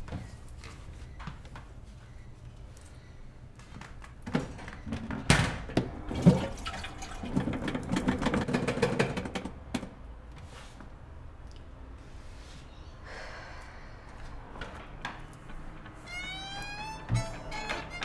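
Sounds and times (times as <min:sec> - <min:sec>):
toilet flush water rushing: 0:06.1 - 0:08.2.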